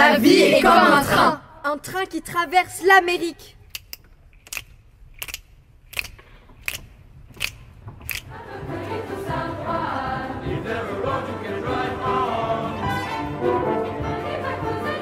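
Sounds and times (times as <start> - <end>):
choir and orchestra: 0.0 - 1.4, 8.2 - 15.0.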